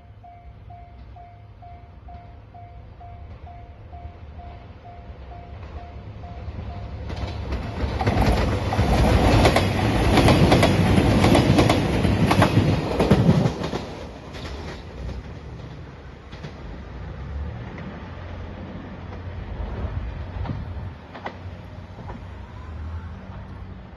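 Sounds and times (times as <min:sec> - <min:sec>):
wheels clattering over rail joints: 0:07.0 - 0:17.9.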